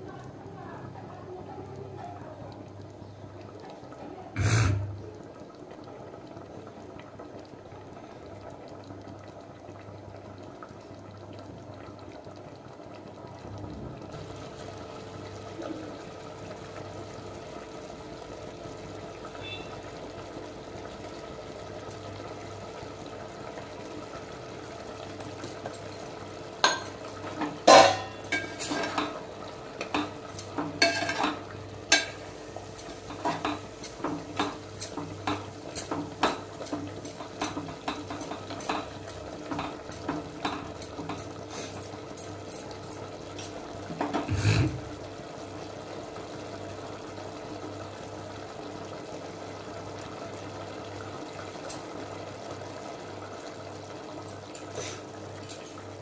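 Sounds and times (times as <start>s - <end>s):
spoon scraping a metal pot: 27.7s - 29.2s.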